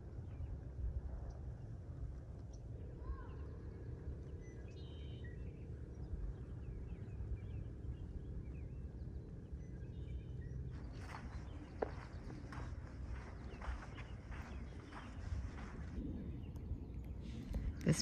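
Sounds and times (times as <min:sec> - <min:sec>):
wind rumble on microphone: 0:00.0 - 0:18.0
faint bird chirps: 0:02.4 - 0:18.0
footsteps: 0:10.8 - 0:16.0.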